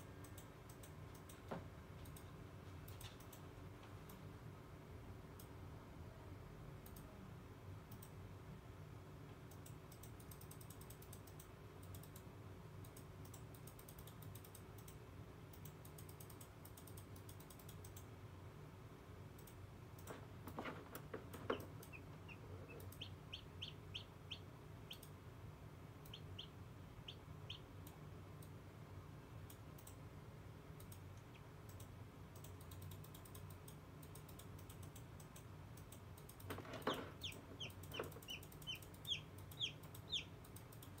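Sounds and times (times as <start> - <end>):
faint rapid clicking: 7.9 - 8.2, 9.4 - 18.1, 19.3 - 23.1, 29.4 - 30.0, 30.7 - 41.0
chick peeping: 21.2 - 25.1, 26.0 - 27.8, 36.8 - 40.4.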